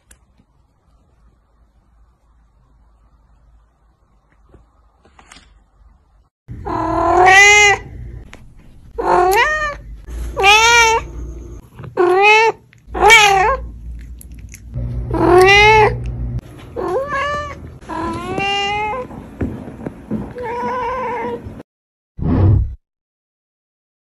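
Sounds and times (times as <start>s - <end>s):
cat meowing loudly: 6.6s - 7.9s, 9.0s - 11.1s, 12.0s - 13.7s.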